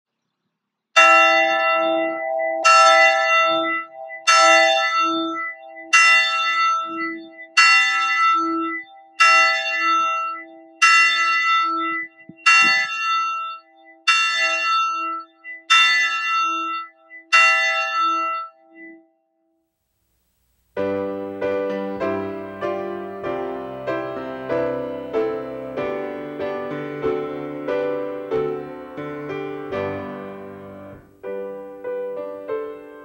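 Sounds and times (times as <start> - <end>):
church bell tolling: 1.0 - 19.0.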